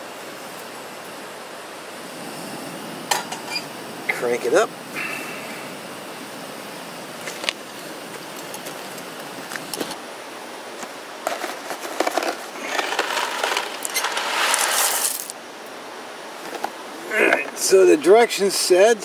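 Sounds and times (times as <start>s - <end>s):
gas stove hissing: 0.0s - 11.1s
packet rustling and crackling: 10.8s - 15.4s.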